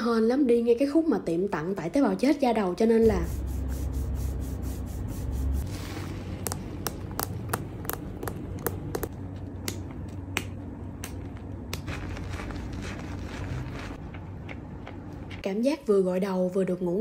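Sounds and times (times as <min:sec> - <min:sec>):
wet squelches of lathered hair: 0:11.8 - 0:14.1.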